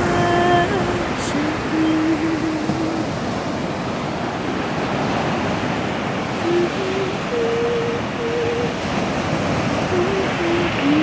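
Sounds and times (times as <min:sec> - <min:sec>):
person humming: 0:00.0 - 0:03.2, 0:06.4 - 0:08.8, 0:09.8 - 0:11.0
waves breaking on shore: 0:00.0 - 0:11.0.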